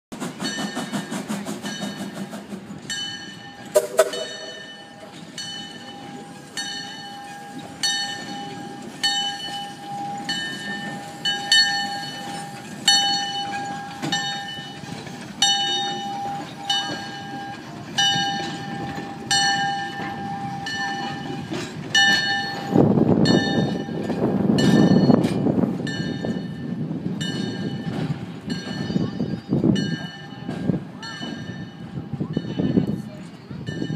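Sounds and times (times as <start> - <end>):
locomotive bell ringing: 0.4 - 33.9
steam whistle toot: 3.7 - 4.8.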